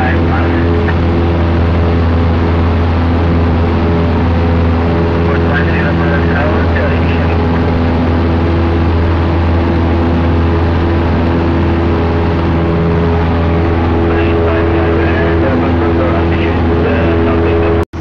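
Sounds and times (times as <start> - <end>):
aircraft engine droning in cabin: 0.0 - 18.0.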